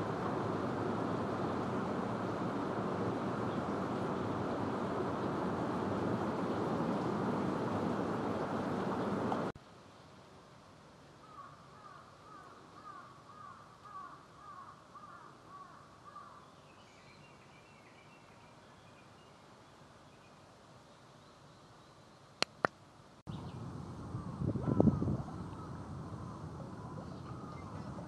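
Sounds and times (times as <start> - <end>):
soft steady hiss: 0.0 - 28.0
faint higher bird calls: 11.2 - 22.4, 24.2 - 28.0
sharp clicks: 22.4 - 22.8.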